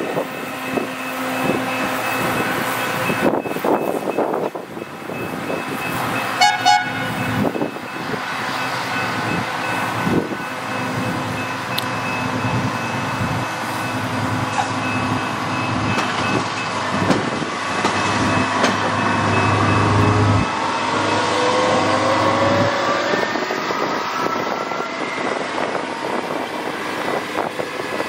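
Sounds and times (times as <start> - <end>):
rail machine engine and wheel noise: 0.0 - 28.0
short horn toots: 6.4 - 7.1
deep rumble of approaching machine: 7.1 - 28.0.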